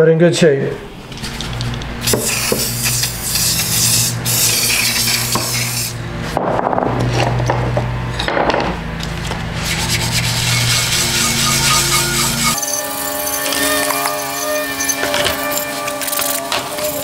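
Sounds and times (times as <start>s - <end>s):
aerosol spray hissing: 2.0s - 6.0s.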